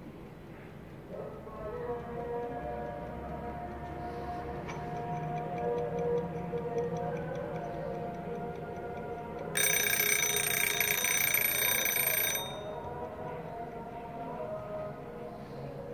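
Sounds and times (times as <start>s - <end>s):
timer bell ringing: 9.0s - 13.2s.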